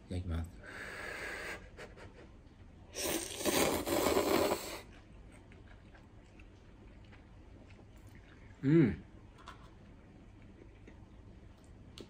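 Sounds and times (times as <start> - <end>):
man blowing on food: 2.9 - 4.8
loud noodle slurping: 3.0 - 4.9.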